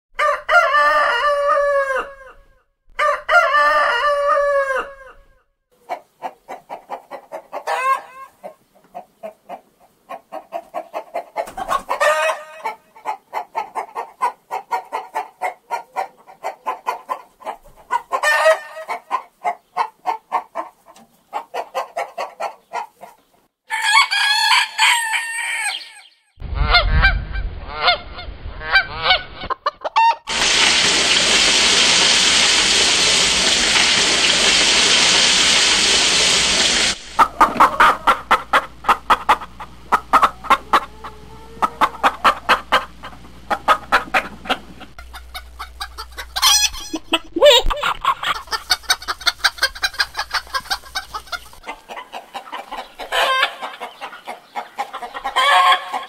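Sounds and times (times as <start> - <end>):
rooster crowing: 0.2 - 2.4, 3.0 - 5.3, 23.7 - 26.1
hens clucking: 5.8 - 23.4, 27.7 - 56.0
low rumble: 26.4 - 29.6
hens squawking: 28.7 - 56.0.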